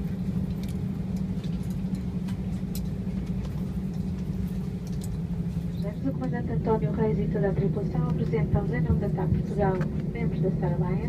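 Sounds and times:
airliner cabin hum: 0.0s - 11.0s.

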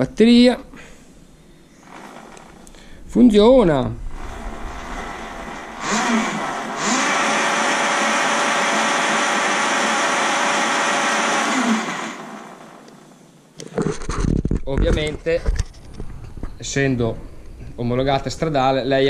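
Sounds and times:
electric motorbike motor whine: 1.8s - 2.7s, 4.1s - 13.0s.

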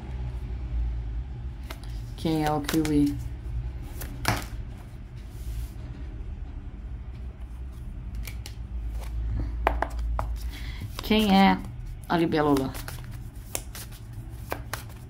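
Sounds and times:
low steady hum: 0.0s - 15.0s
cards being shuffled: 1.6s - 4.6s, 7.7s - 15.0s.

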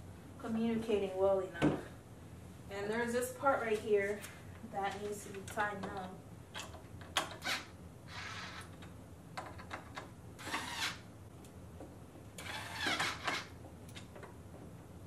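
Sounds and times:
screw grating: 7.1s - 8.9s, 9.5s - 11.0s, 12.4s - 13.6s.

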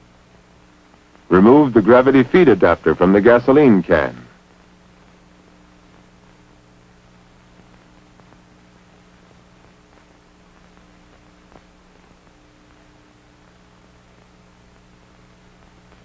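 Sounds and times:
film soundtrack hum and hiss: 0.0s - 16.0s.

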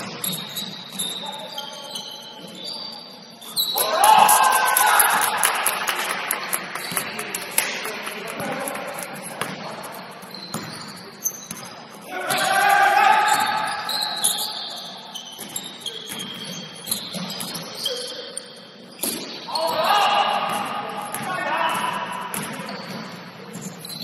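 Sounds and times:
shoe squeaks: 0.0s - 5.3s, 6.4s - 24.0s
players' voices: 1.2s - 15.0s, 19.5s - 23.5s
basketball bouncing on gym floor: 6.8s - 12.5s, 15.4s - 17.8s, 20.4s - 24.0s.

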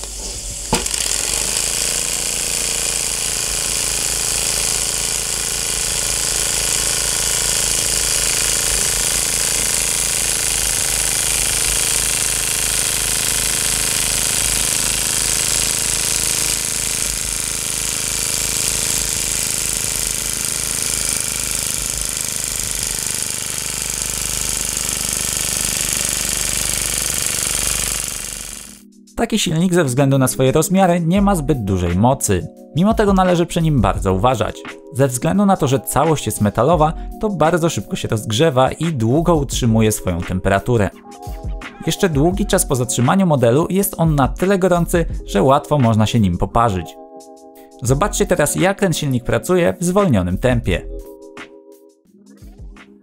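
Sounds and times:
loud steam hiss: 0.0s - 28.8s.

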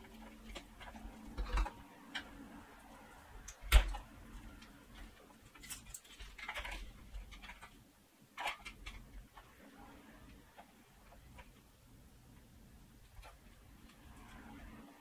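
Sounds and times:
cable connectors clicking and rattling: 0.0s - 2.6s, 3.4s - 11.7s, 13.0s - 14.7s
cable rustling: 0.0s - 11.8s.

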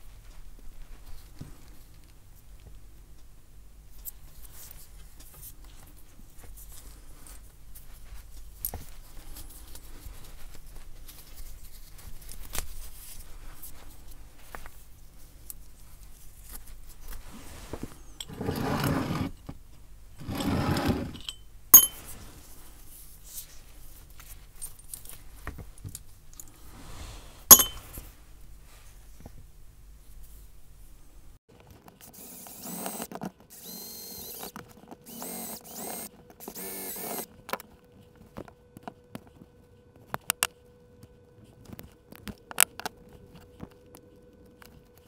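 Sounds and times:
leather rustling and rubbing: 16.2s - 19.4s
sharp metal clinks: 21.2s - 22.0s, 27.5s - 27.9s.

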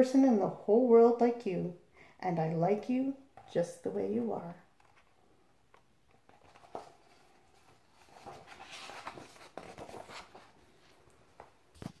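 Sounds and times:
paper and cover rustling: 4.8s - 12.0s.

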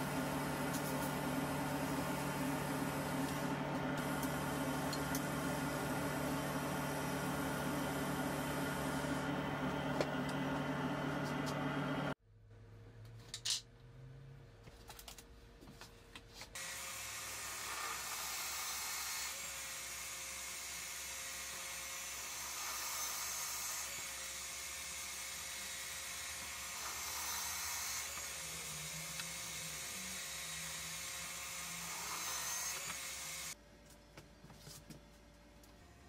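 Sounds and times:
drill press boring into wood: 16.6s - 33.6s.

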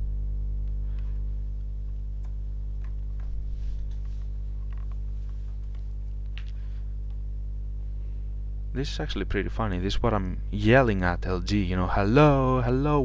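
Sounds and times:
low electrical hum: 0.0s - 13.0s
soft rustle: 2.8s - 7.2s.

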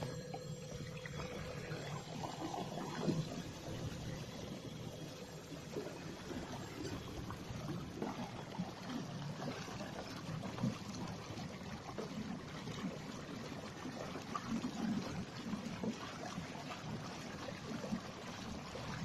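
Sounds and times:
water splashing along kayak hull: 0.0s - 19.0s.

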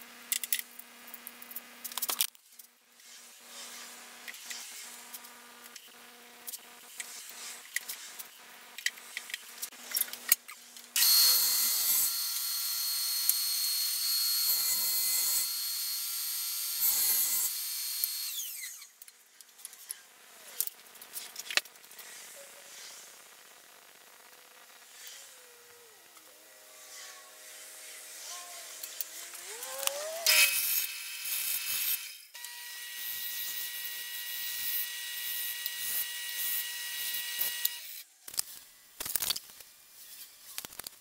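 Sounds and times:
saw cutting plywood: 11.0s - 18.9s, 24.9s - 38.0s
table saw whining: 11.0s - 18.9s, 24.9s - 38.0s.

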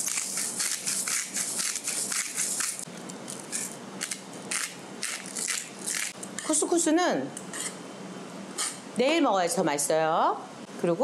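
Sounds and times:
pepper mill grinding: 0.0s - 6.2s
salt grinder grinding: 0.0s - 6.2s.

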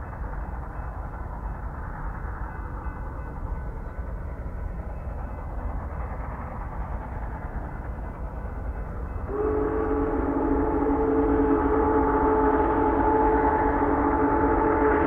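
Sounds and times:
steam locomotive rumbling: 0.0s - 15.0s
steam whistle chord: 9.2s - 15.0s.

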